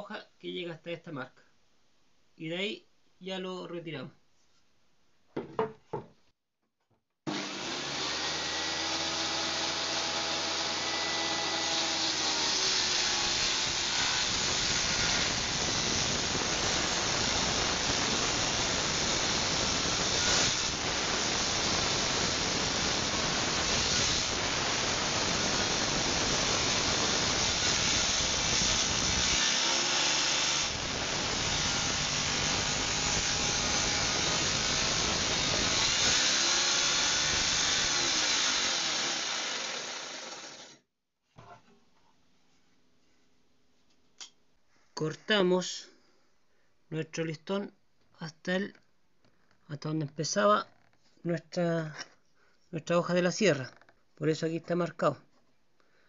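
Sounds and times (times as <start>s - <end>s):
saw ripping through wood: 7.3s - 40.8s
table saw motor hum: 23.7s - 40.8s.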